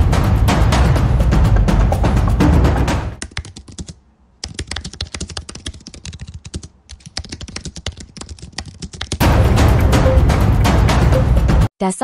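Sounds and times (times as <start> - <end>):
typing on computer keyboard: 3.2 - 9.2.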